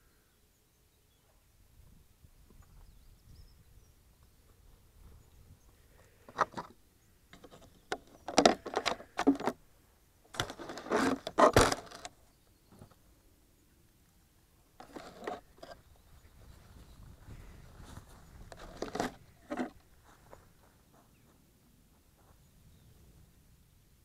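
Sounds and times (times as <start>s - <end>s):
hand scraping and rubbing glider: 7.4s - 9.6s, 10.3s - 12.2s, 14.8s - 15.9s, 17.4s - 20.3s.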